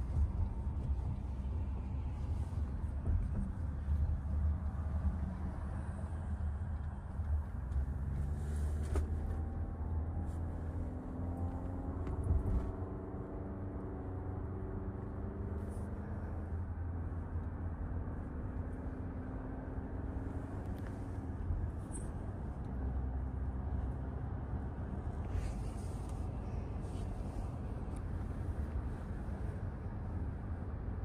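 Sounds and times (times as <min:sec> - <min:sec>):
car driving rumble: 0:00.0 - 0:31.0.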